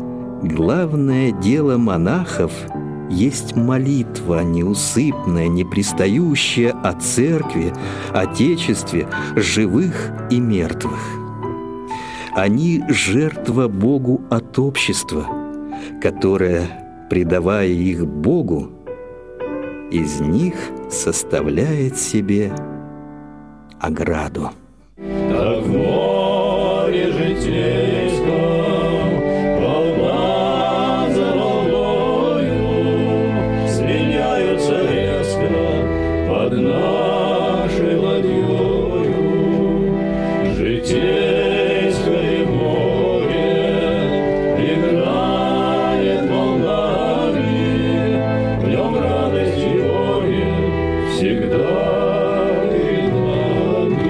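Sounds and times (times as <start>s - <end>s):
instrumental accompaniment: 0.0s - 54.0s
choir singing: 25.2s - 54.0s.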